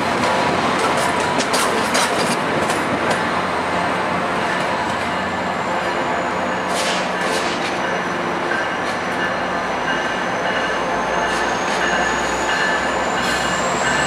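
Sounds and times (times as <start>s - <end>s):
train wheels rumbling on rails: 0.0s - 14.0s
wheels clicking over rail joints: 0.2s - 3.3s
high wheel squeal: 10.0s - 14.0s.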